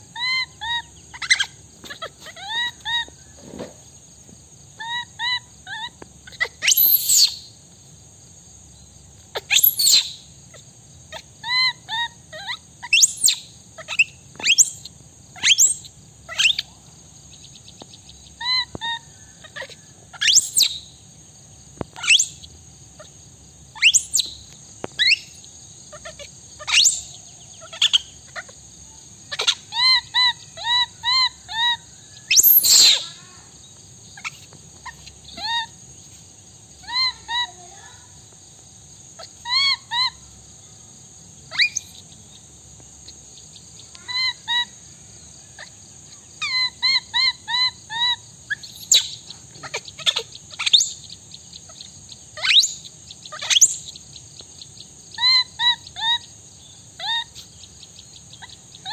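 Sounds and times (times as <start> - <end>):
baby monkey crying: 0.1 - 3.2, 4.8 - 7.4, 9.3 - 16.7, 18.4 - 20.8, 25.0 - 28.6, 29.2 - 33.6, 36.8 - 37.9, 39.2 - 40.2, 43.9 - 44.7, 45.6 - 51.0, 55.2 - 56.2, 57.0 - 57.6
shrill squeals: 29.3 - 33.5.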